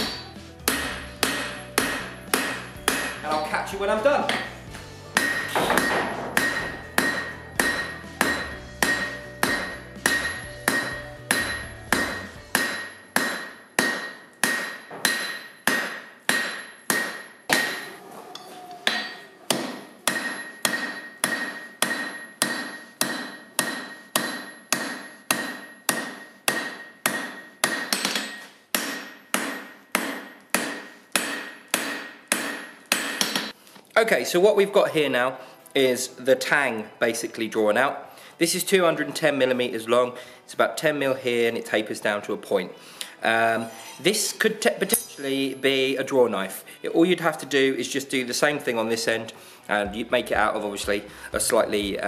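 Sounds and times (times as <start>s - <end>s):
hammer striking anvil with ring: 0.0s - 3.5s, 4.2s - 33.6s.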